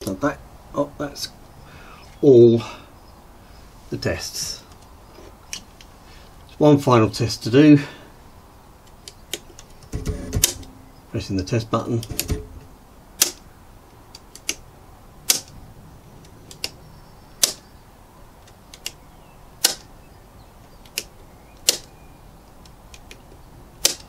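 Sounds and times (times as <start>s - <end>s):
circuit breaker tripping snap: 9.3s - 10.9s, 12.0s - 13.4s, 15.3s - 15.5s, 17.4s - 17.6s, 19.6s - 19.9s, 20.9s - 21.9s, 23.8s - 24.0s
faint handling clicks: 20.6s - 24.0s.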